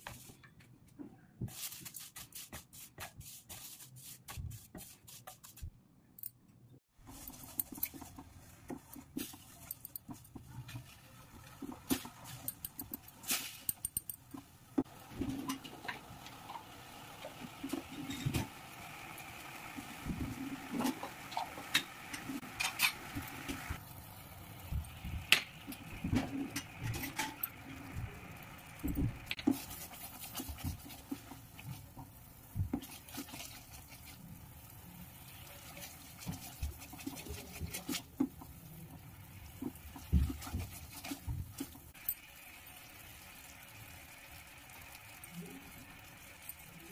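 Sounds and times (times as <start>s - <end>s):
syrup bubbling in a pan: 14.3s - 46.9s
spatula scraping and knocking pan: 24.8s - 34.2s.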